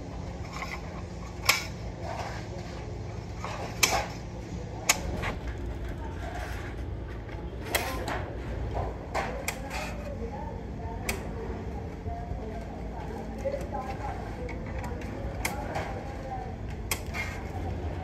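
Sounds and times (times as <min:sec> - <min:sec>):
steady low hum: 0:00.0 - 0:18.0
shears cutting steel sheet: 0:16.9 - 0:17.5.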